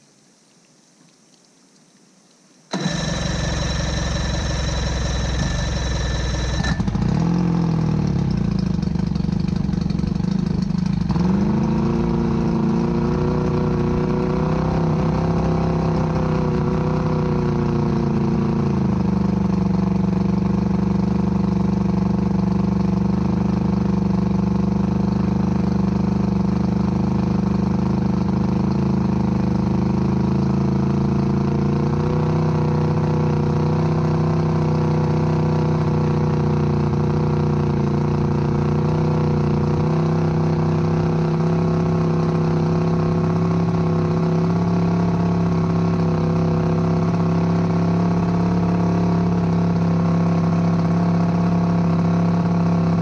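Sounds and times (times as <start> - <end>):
electric starter cranking: 2.7 - 7.3
outboard engine running: 2.7 - 11.8.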